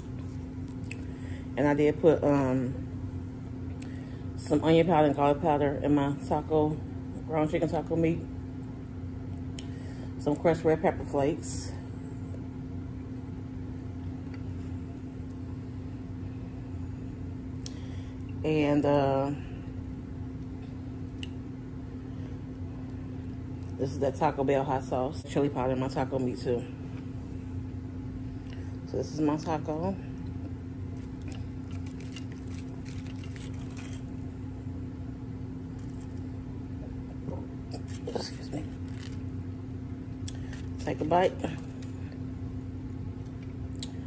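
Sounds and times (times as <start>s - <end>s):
room hum: 0.0s - 44.0s
crunchy taco shell crackling: 30.4s - 42.4s.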